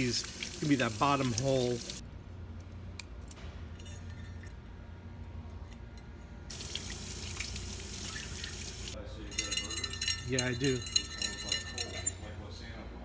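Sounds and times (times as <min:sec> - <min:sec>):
tap water splashing on metal: 0:06.5 - 0:09.0.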